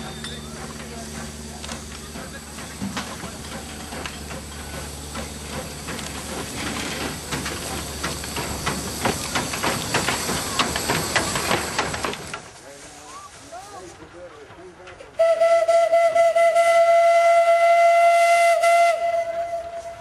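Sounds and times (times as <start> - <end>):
steam locomotive exhaust chuffing: 0.0 - 13.0, 14.8 - 20.0
steam hissing: 0.0 - 13.8.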